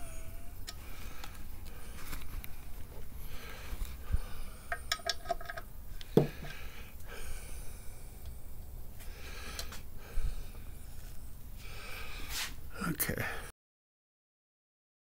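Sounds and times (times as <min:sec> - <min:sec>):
socket wrench clinking on bolts: 0:04.7 - 0:05.6.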